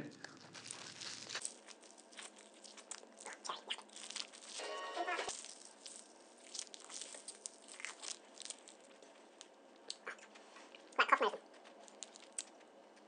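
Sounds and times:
ice crunching: 0.2 - 9.4
wet mouth clicks: 2.9 - 3.9.

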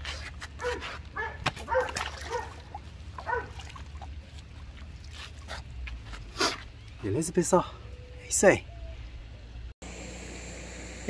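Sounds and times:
dog yelps and barks: 0.6 - 3.6
low hum: 8.7 - 11.0.

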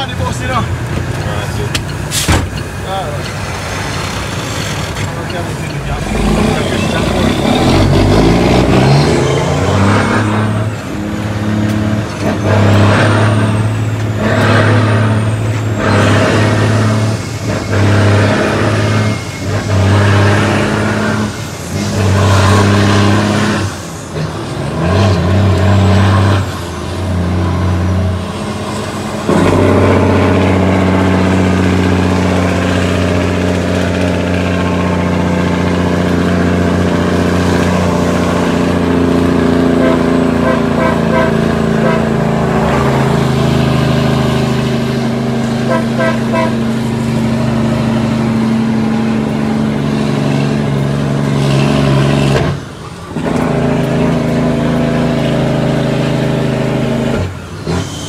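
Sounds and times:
diesel truck engine shifting gears: 0.0 - 58.0
high turbo whistle: 45.6 - 46.8.

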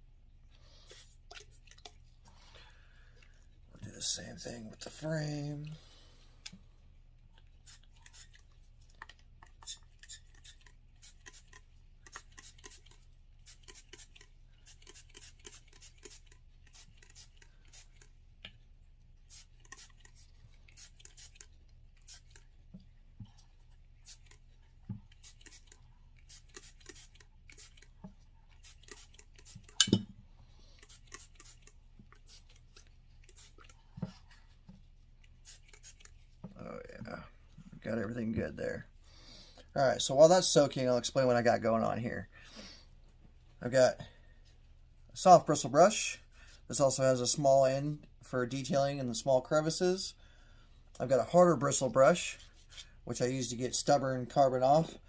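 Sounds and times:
short spurts of spray: 9.6 - 18.1, 19.3 - 22.4, 25.1 - 27.9, 28.6 - 29.8, 30.8 - 33.8, 35.4 - 36.2.

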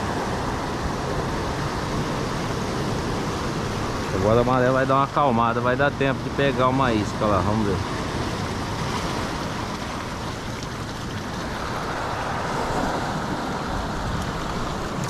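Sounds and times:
sea surf washing over rocks: 0.0 - 15.0.

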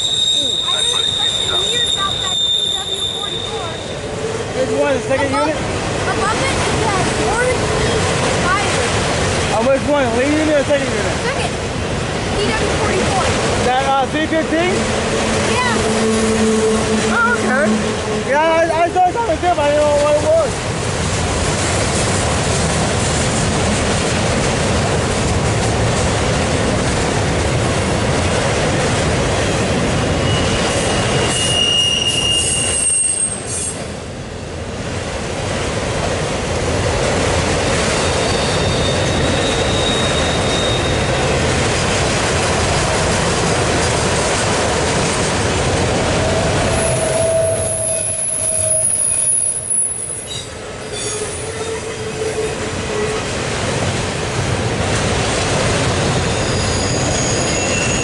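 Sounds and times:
high-pitched wheel squeals: 0.0 - 4.1, 15.7 - 18.0, 30.1 - 33.9, 37.9 - 41.3, 46.3 - 53.3, 56.2 - 58.0
train wheels rumbling on rails: 0.0 - 58.0.

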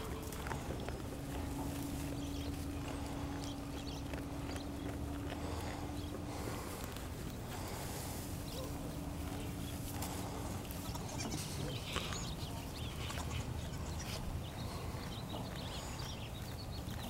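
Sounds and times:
low background rumble: 0.0 - 17.0
goats bleating: 10.0 - 14.4.

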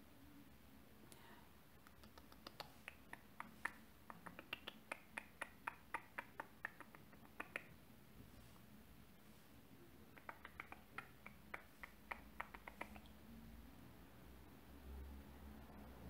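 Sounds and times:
brush patting eyelid clicks: 1.8 - 8.6, 10.0 - 13.2.

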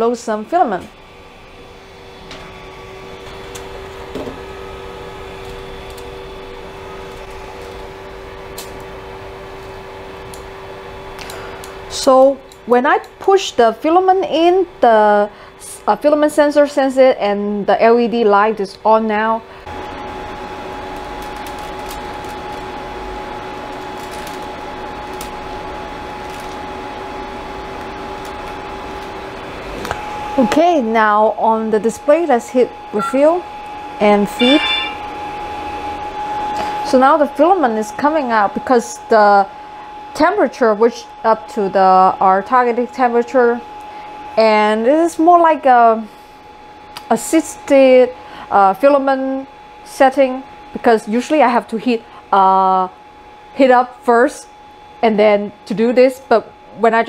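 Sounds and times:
steady whine: 0.0 - 17.0, 17.7 - 46.0
cooling fans humming: 0.0 - 57.0.

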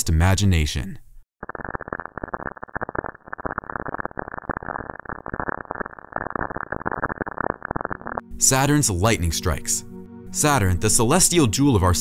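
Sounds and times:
crackling static: 1.4 - 8.6.

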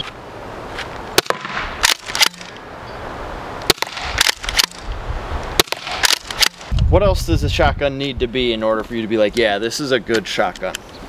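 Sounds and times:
launcher firing sharp pops: 1.2 - 2.6, 3.6 - 4.9, 5.6 - 6.8.

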